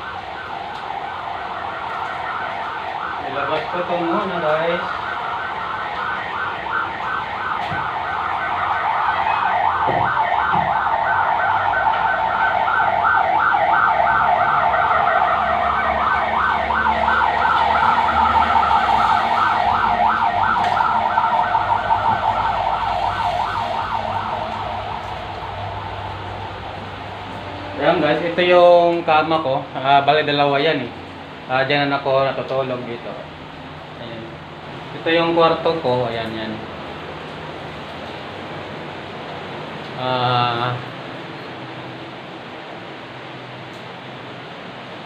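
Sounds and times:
warbling siren: 0.0s - 29.5s.

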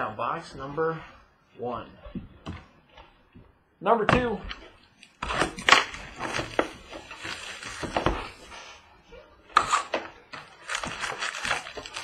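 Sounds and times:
cardboard and wrappers rustling: 4.5s - 8.9s, 9.7s - 12.0s.

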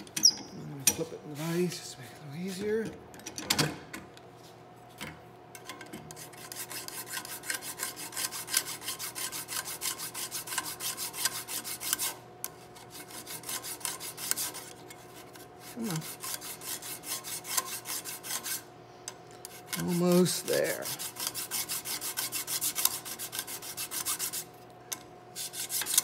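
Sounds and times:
file scraping on metal: 6.1s - 18.7s, 19.4s - 24.5s, 25.4s - 26.0s.

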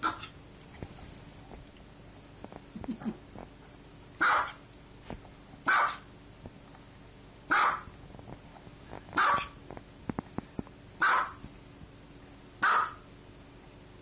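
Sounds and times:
small dog barking: 0.0s - 0.4s, 4.2s - 4.6s, 5.7s - 6.1s, 7.5s - 7.9s, 9.2s - 9.6s, 11.0s - 11.4s, 12.6s - 13.1s.

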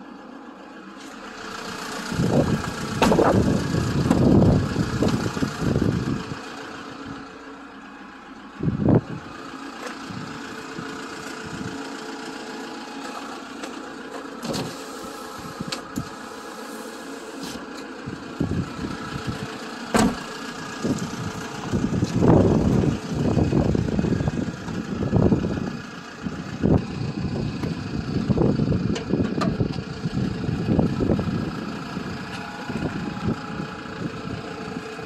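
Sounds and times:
vehicle engine idling: 0.0s - 35.0s
loud thump: 3.0s - 3.4s, 19.9s - 20.2s.

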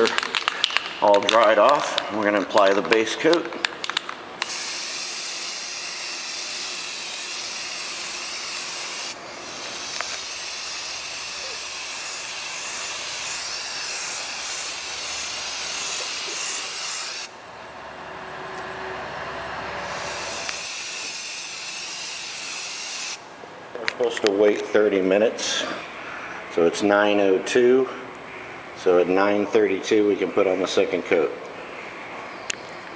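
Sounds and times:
aerosol can spraying: 4.4s - 17.3s.

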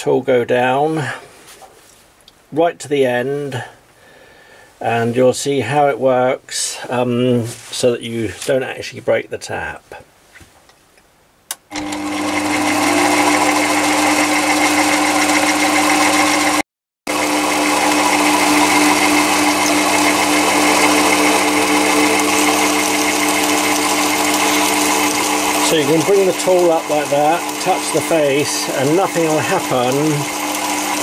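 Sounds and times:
lathe motor hum and whine: 11.7s - 31.0s.

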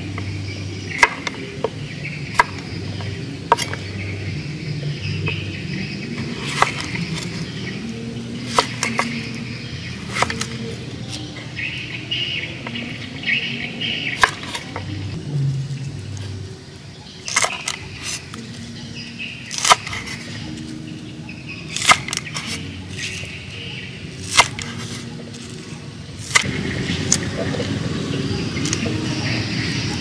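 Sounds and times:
knife slicing cucumber: 6.3s - 7.6s, 8.4s - 9.4s, 10.0s - 11.3s, 19.5s - 20.3s, 21.7s - 23.3s, 24.2s - 25.6s.

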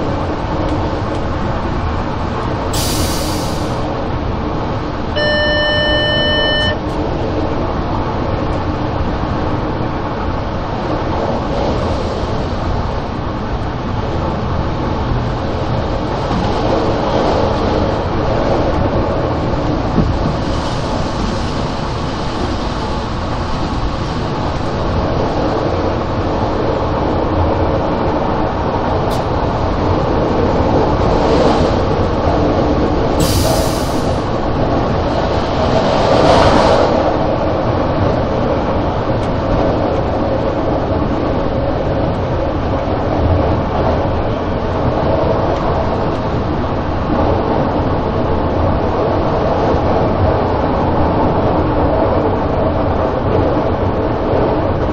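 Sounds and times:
railcar wheels rumbling on rail: 0.0s - 54.9s
short high hiss: 2.8s - 3.8s, 33.2s - 34.2s.

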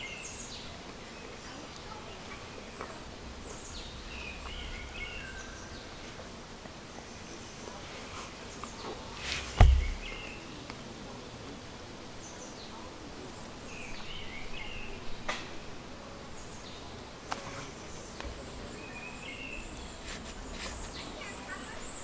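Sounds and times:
birds chirping: 0.0s - 10.6s, 17.6s - 22.0s
insect hiss: 0.0s - 22.0s
sharp thump: 9.2s - 10.2s.

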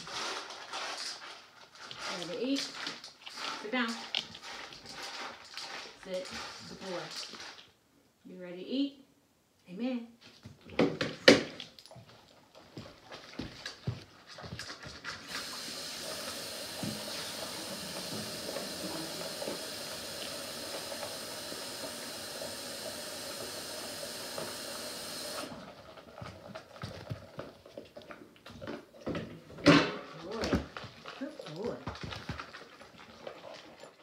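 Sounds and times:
water running from a tap: 15.3s - 25.6s.

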